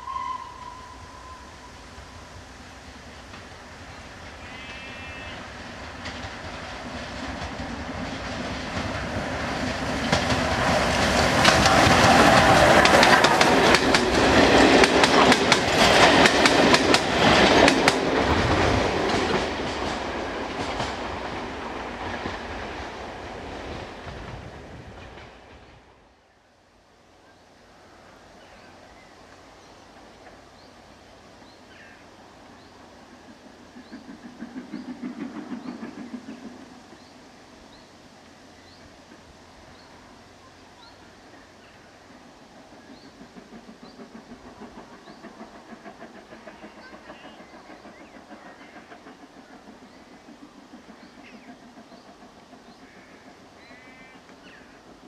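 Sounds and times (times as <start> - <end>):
steam train passing: 0.0 - 55.0
wheels clattering over rail joints: 5.9 - 22.6.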